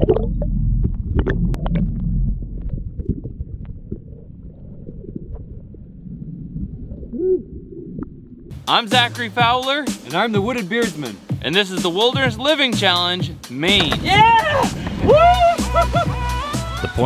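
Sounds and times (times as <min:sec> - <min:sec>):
low rumble of wind and water: 0:00.0 - 0:08.5.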